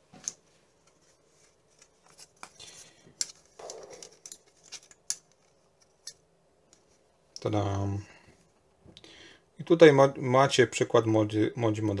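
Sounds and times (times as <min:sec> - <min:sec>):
plastic parts clicking: 0:01.8 - 0:06.8.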